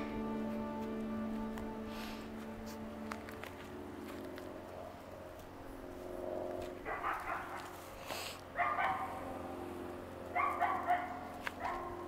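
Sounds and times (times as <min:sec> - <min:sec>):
puppy yipping and barking: 0:06.8 - 0:07.7, 0:08.6 - 0:09.1, 0:10.4 - 0:12.0.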